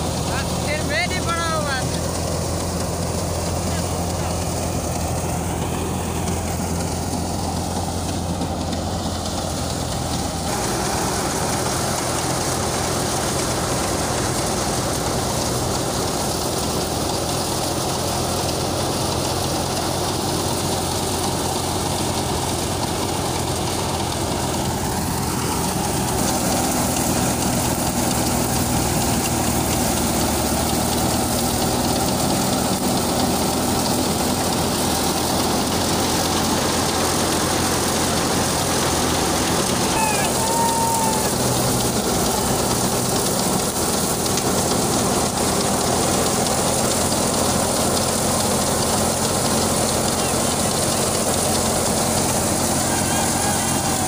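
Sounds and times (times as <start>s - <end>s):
crop thresher running: 0.0s - 54.0s
drive engine running: 0.0s - 54.0s.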